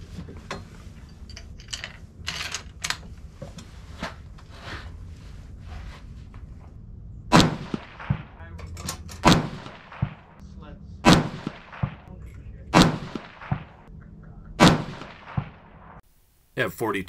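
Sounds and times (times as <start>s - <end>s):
rifle handling clicks and rustles: 0.2s - 3.7s, 8.6s - 9.3s
loud rifle shot: 7.3s - 8.5s, 9.2s - 10.4s, 11.0s - 12.1s, 12.7s - 13.9s, 14.6s - 16.0s.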